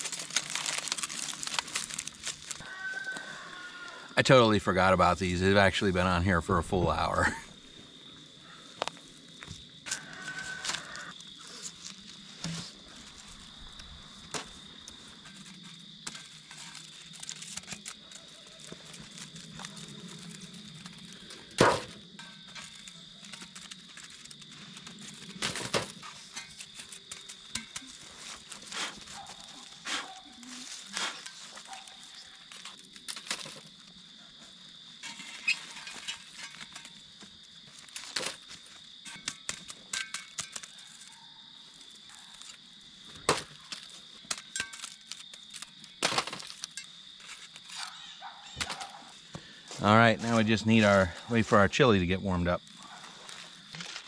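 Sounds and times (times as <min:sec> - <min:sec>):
metal shovel scraping ash: 0:15.0 - 0:20.4, 0:21.6 - 0:32.8, 0:34.9 - 0:37.2.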